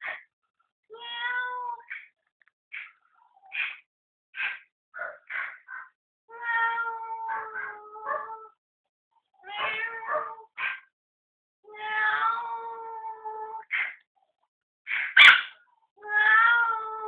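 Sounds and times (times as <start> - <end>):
dog wailing cries: 6.5 - 8.6, 9.5 - 10.8
small dog yapping: 7.3 - 8.2, 9.6 - 10.8, 14.9 - 15.6.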